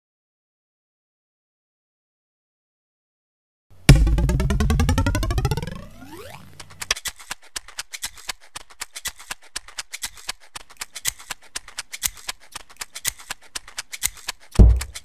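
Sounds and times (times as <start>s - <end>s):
light percussion music: 3.9s - 6.5s.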